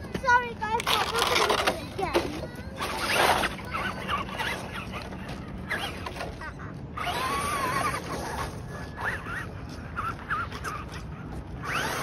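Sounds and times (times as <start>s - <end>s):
rc truck motor whine: 2.8s - 6.4s, 7.0s - 12.0s.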